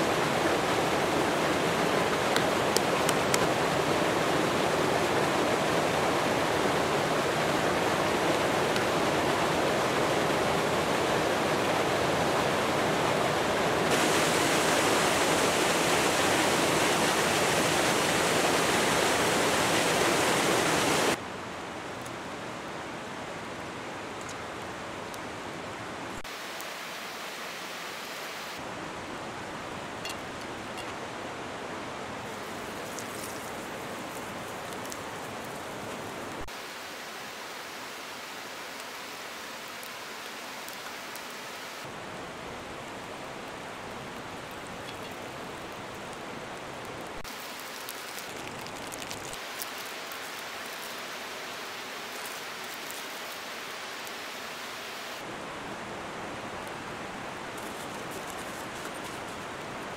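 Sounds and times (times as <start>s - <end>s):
campfire crackles: 0.0s - 16.6s, 32.2s - 59.9s
running water rushing: 0.0s - 21.8s, 22.4s - 59.9s.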